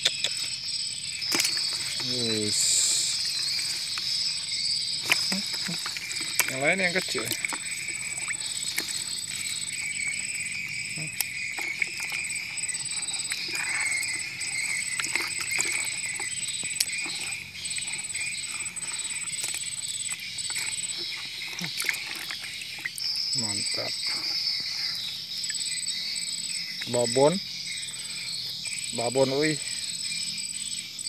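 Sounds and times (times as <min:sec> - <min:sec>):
insects chirring: 0:00.0 - 0:31.0
water splashing in a tub: 0:05.0 - 0:24.4.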